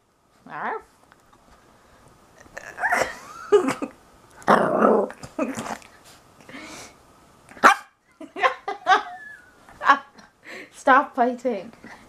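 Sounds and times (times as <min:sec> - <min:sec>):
puppy growling and yapping: 0:04.4 - 0:05.9.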